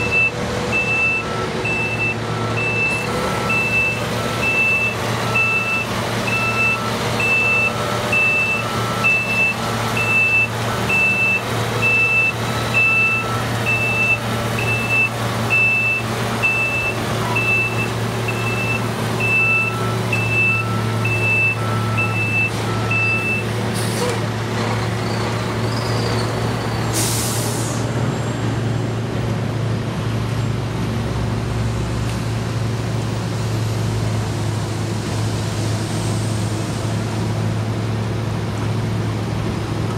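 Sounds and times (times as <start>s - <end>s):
reversing alarm beeping: 0.0s - 23.6s
heavy truck engine running: 0.0s - 39.9s
loud hiss of air: 26.9s - 27.9s.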